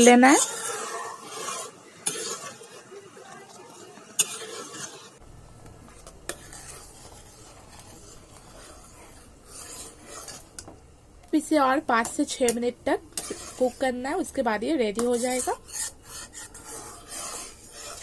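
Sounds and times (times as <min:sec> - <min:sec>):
spoon scraping metal pot: 0:00.0 - 0:03.4, 0:04.2 - 0:10.7, 0:11.9 - 0:18.0.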